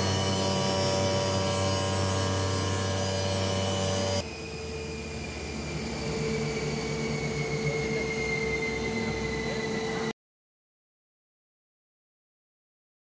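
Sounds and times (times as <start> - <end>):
planer machine humming: 0.0 - 4.3
falling machine whine: 0.0 - 10.1.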